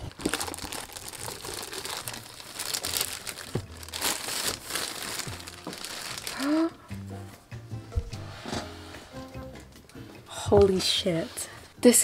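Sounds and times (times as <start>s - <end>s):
plastic film crinkling: 0.0s - 6.8s.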